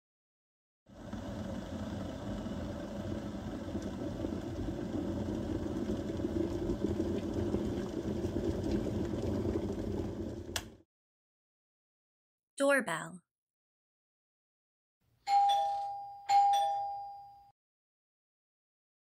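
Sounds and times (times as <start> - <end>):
kettle rumbling hiss: 0.9 - 10.8.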